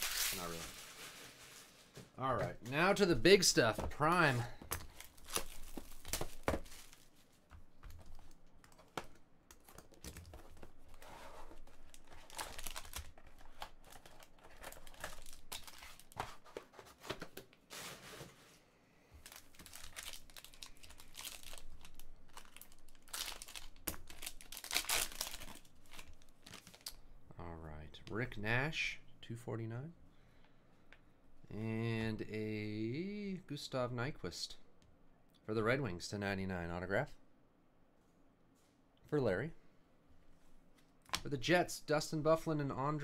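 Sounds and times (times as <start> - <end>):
foil pack tearing: 0.0 - 1.6.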